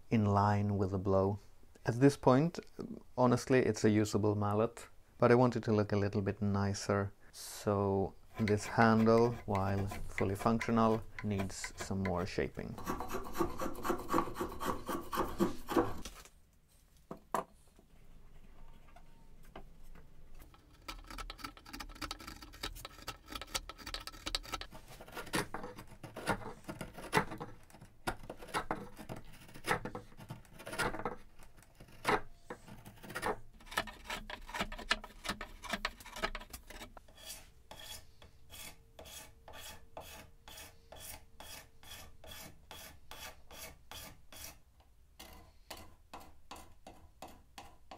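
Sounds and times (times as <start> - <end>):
file strokes on wood: 8.3 - 16.1, 31.8 - 44.6
spokeshave shaving wood: 8.3 - 16.2, 20.5 - 32.1, 32.7 - 44.6.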